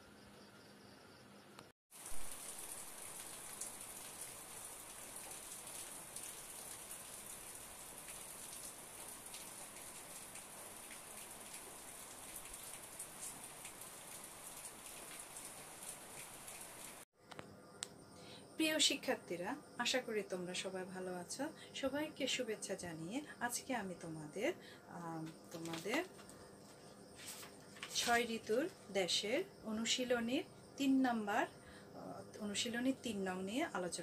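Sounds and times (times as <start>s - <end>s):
rain hiss and patter: 1.9s - 17.1s, 22.5s - 31.6s.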